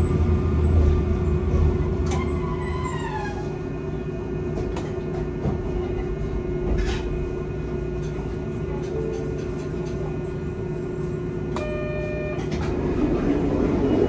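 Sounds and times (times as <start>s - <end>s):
tram humming: 0.0s - 14.0s
tram whine falling: 11.4s - 14.0s.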